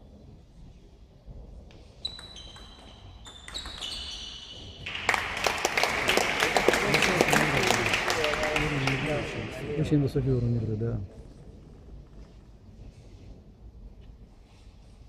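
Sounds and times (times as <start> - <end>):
audience applause: 4.9 - 10.0.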